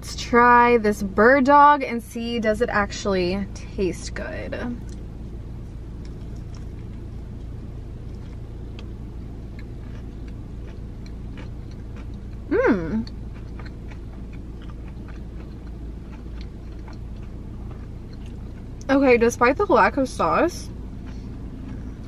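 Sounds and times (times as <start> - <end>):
person chewing and crunching: 6.0 - 18.9, 21.0 - 22.0
closed-mouth mmm: 12.5 - 13.2.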